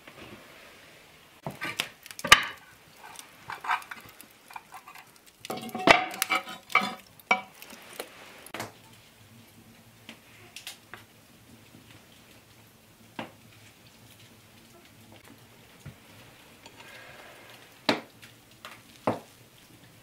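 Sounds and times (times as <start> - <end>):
metal tool scraping coals on lid: 1.4 - 8.0, 16.6 - 17.7.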